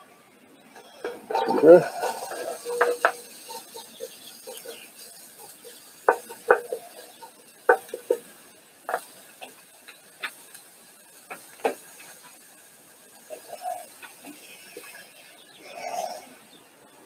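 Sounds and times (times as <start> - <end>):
wooden spoon knocking on pot: 6.1 - 7.1, 7.7 - 8.3.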